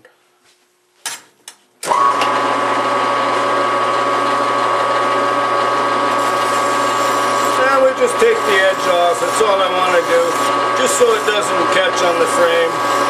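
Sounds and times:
lathe motor humming: 0:01.9 - 0:13.0
file on spinning metal: 0:05.0 - 0:13.0.

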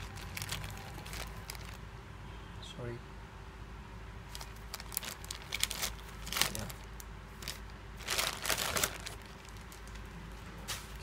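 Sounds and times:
plastic bag tearing: 0:00.0 - 0:01.8, 0:04.3 - 0:10.0
plastic mailer bag crinkling: 0:00.0 - 0:01.8, 0:04.3 - 0:10.1.

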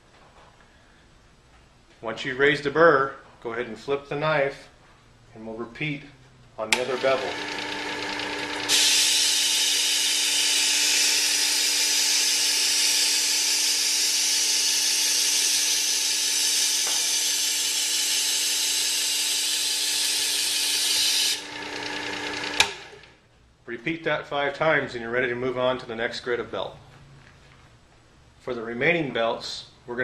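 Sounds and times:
sharpener motor humming: 0:06.7 - 0:23.1
knife grinding on abrasive belt: 0:06.9 - 0:22.8.

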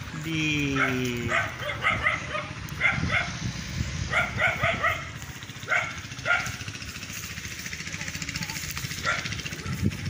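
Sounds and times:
wind rumbling on microphone: 0:00.0 - 0:10.0
dog barking: 0:00.7 - 0:03.4, 0:04.1 - 0:06.8, 0:09.0 - 0:09.8.

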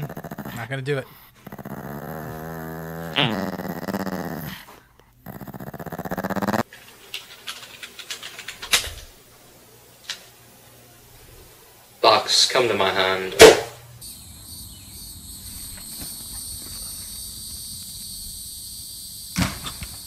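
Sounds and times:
small dog growling: 0:00.0 - 0:06.7, 0:15.4 - 0:18.0
scattered clicks: 0:06.7 - 0:09.1.

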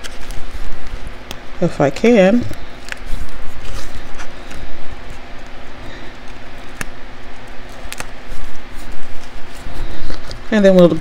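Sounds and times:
paper rustling: 0:00.0 - 0:01.4, 0:02.4 - 0:11.0
backing liner peeling off tape: 0:06.3 - 0:10.4.

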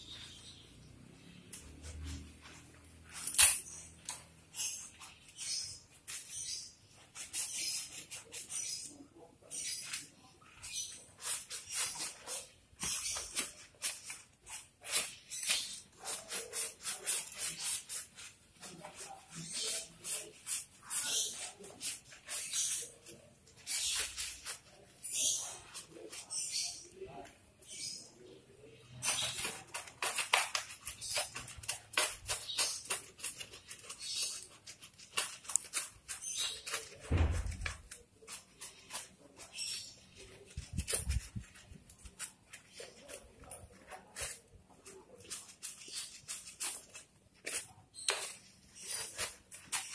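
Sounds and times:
low thump: 0:37.1 - 0:37.6.

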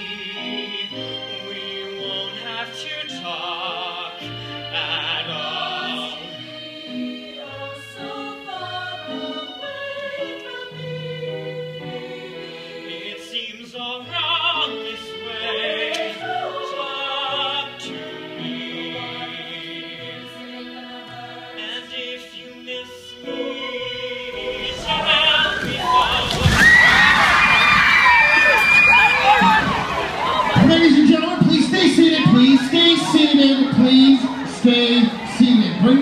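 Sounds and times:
young man singing: 0:01.4 - 0:06.4, 0:12.8 - 0:20.0, 0:21.5 - 0:26.5.

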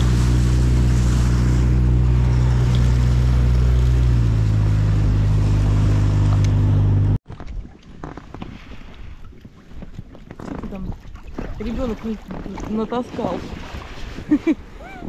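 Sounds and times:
outboard motor running: 0:00.0 - 0:07.2.

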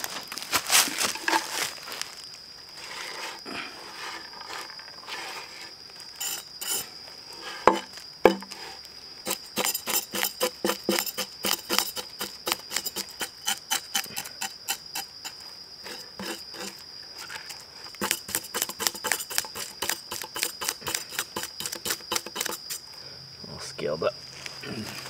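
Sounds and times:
high-pitched insect chorus: 0:00.0 - 0:25.0
knife scraping fish scales: 0:06.2 - 0:06.9, 0:09.3 - 0:16.8, 0:18.0 - 0:22.8.

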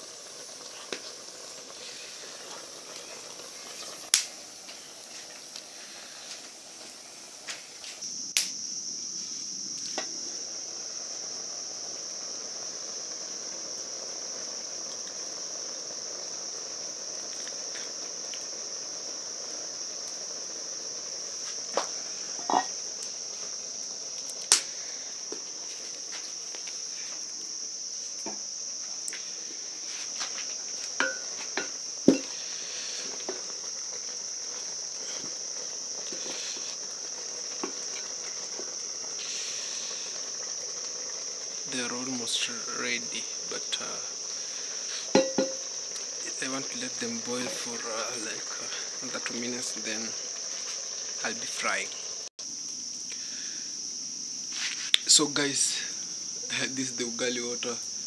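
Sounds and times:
crickets chirping: 0:00.0 - 0:58.0
sharp knocks and clinks: 0:45.2 - 0:45.6.

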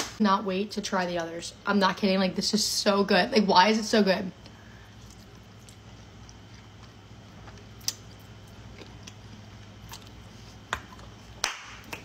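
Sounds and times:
low steady hum: 0:00.0 - 0:12.0
person chewing noodles: 0:04.8 - 0:11.4.

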